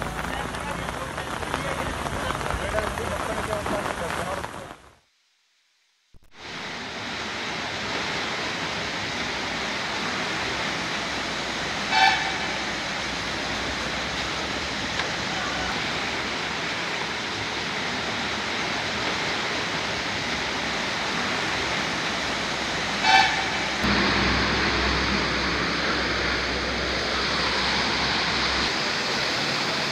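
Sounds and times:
rushing floodwater: 0.0 - 4.8, 6.3 - 29.9
vehicle horn toot: 11.9 - 12.4, 23.0 - 23.6.

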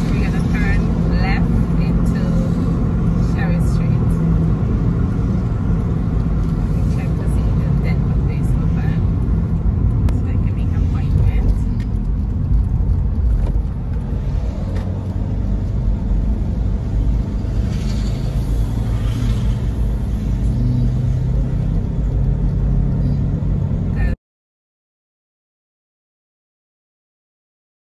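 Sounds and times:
car road and engine rumble: 0.0 - 24.2.

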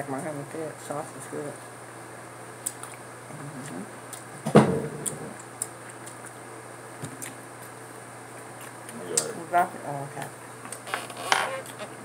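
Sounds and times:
loud knock: 4.5 - 4.9.

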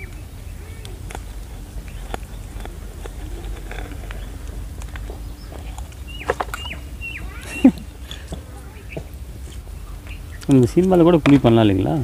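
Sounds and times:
low background rumble: 0.0 - 12.0
high falling chirp: 5.2 - 10.5.

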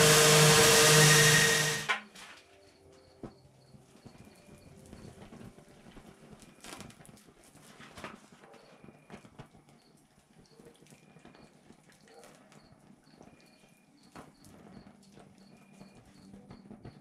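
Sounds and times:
hot blade sizzling in oil: 0.0 - 2.0.

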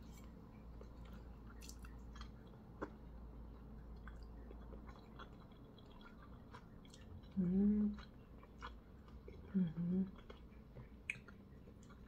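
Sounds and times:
person chewing food: 0.0 - 12.0.

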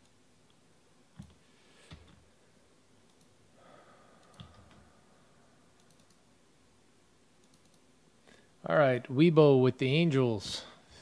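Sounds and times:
faint breathy hiss: 1.4 - 6.3, 8.1 - 8.8
computer mouse clicks: 3.0 - 3.4, 4.2 - 4.8, 5.8 - 6.2, 7.4 - 7.9.

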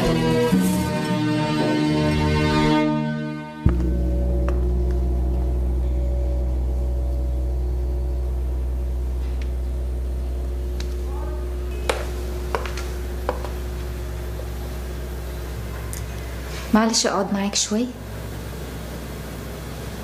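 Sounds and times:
low dramatic music drone: 0.0 - 20.0.

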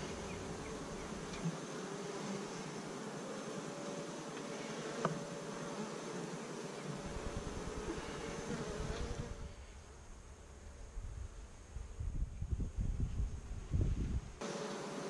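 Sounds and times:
honeybees buzzing: 0.0 - 9.8, 14.4 - 15.0.

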